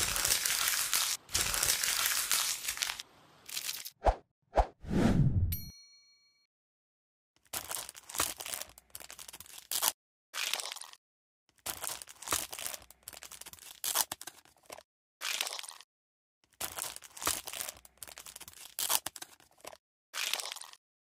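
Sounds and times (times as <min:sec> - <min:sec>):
dry crackly tearing and crinkling: 0:00.0 - 0:04.0, 0:07.4 - 0:15.9, 0:16.5 - 0:20.8.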